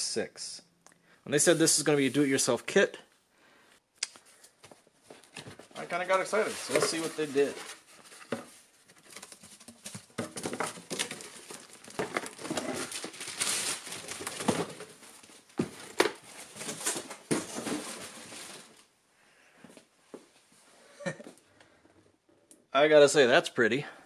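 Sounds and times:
plastic bag rustling and crinkling: 5.1 - 18.9
cardboard box being opened: 6.3 - 14.8.

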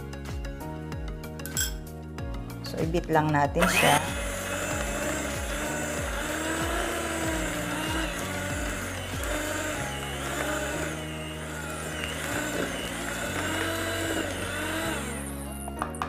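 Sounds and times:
background music: 0.0 - 16.0
electric hand mixer running: 3.6 - 16.0.

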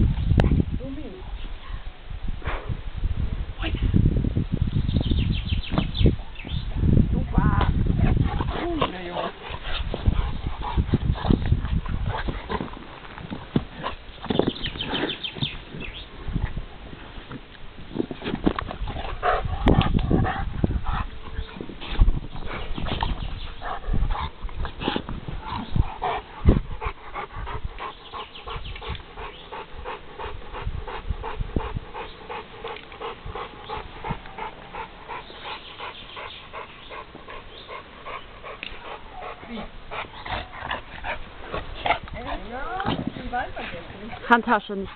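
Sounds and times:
dog panting hard: 8.0 - 12.8, 18.8 - 44.9.

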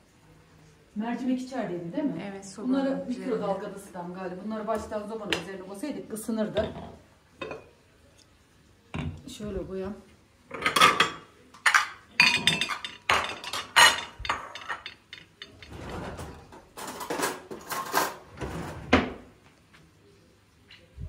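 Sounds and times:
pots and pan clattering: 6.5 - 7.8, 10.5 - 19.2
plates set down on stone counter: 6.6 - 7.8, 8.9 - 9.3, 10.5 - 18.2.

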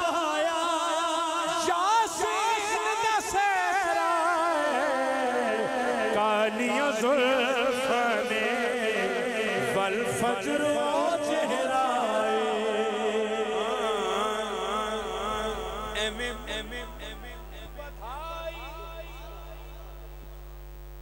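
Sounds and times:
man singing into a microphone: 0.0 - 20.0
steady low hum: 14.0 - 21.0.

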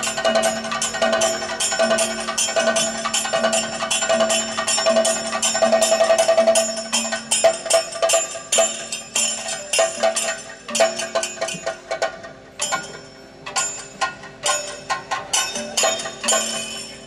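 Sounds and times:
steady drone: 0.0 - 8.4
clashing hand cymbals: 0.0 - 17.0
drums struck in rhythm: 0.0 - 17.0.

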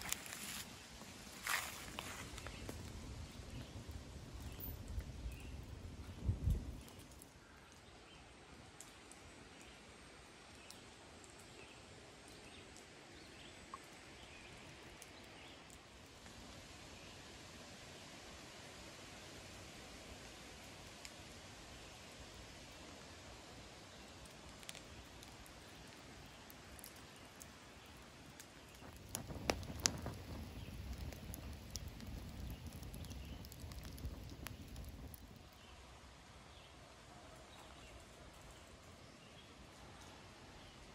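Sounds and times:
wood fire crackling and popping: 0.0 - 7.9, 19.4 - 35.7
low steady hiss: 0.0 - 40.9.

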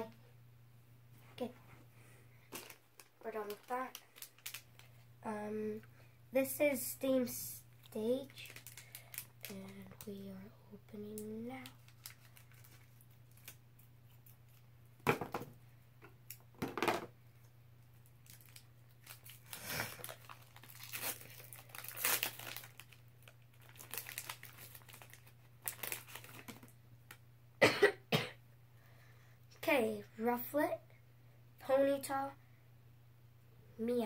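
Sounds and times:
foil wrapper tearing and crinkling: 2.5 - 5.0, 8.3 - 10.0, 11.6 - 14.6, 18.2 - 26.7.

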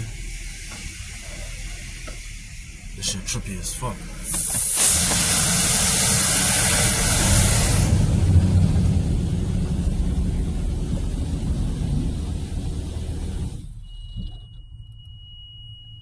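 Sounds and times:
high-pressure water jets spraying car: 0.0 - 13.6
water rumbling on car body: 4.0 - 13.6.

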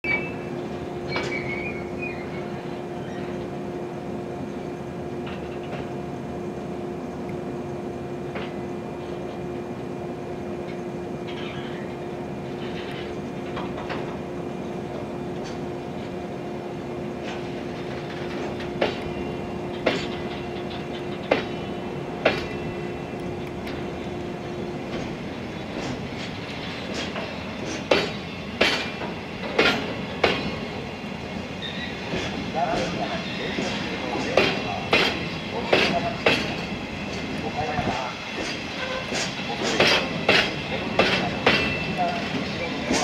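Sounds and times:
freight train rolling past: 0.0 - 43.0
high wheel squeal: 1.1 - 3.4, 30.0 - 32.4, 38.7 - 43.0
wheels clicking over rail joints: 24.9 - 30.6, 32.1 - 37.5, 38.4 - 43.0.

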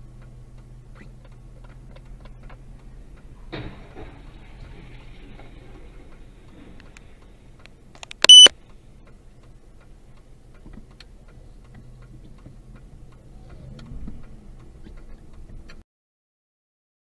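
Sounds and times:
turn signal ticking: 0.0 - 3.4, 5.7 - 15.8
low engine hum: 0.0 - 15.8
high-pitched electronic beep: 8.2 - 8.5.

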